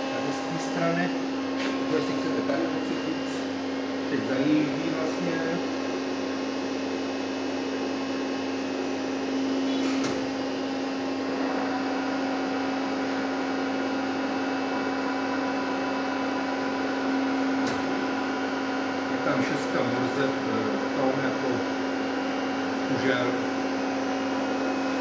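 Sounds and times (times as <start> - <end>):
higher steady tones: 0.0 - 5.4
lathe mechanical hum: 0.0 - 25.0.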